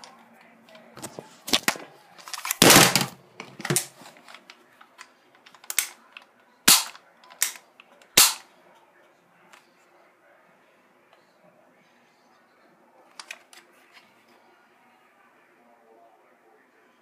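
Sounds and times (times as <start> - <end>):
bb pistol action rattling snap: 5.5 - 6.0, 6.7 - 7.6, 8.2 - 8.4
sharp pistol clicks and snaps: 5.5 - 8.4.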